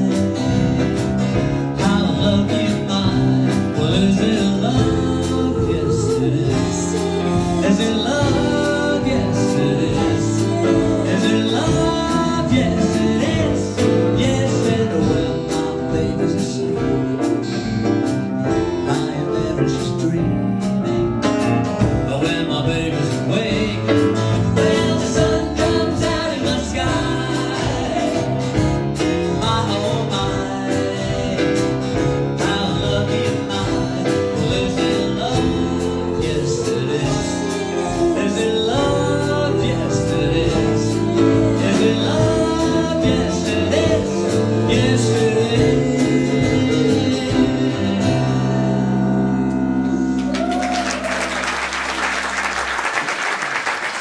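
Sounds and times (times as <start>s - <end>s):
drums: 0.0s - 49.4s, 50.2s - 54.0s
electric bass: 0.0s - 51.9s
acoustic guitar: 0.0s - 52.4s
keyboard: 0.0s - 52.7s
woman singing lead vocals: 24.3s - 31.8s.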